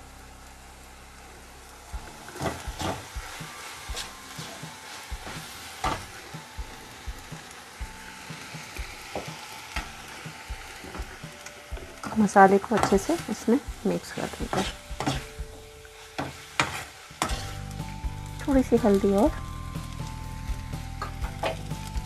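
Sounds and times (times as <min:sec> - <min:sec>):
food sizzling in a frying pan: 0:00.0 - 0:22.0
spoon clinking and scraping pan: 0:14.2 - 0:15.4, 0:16.1 - 0:17.6.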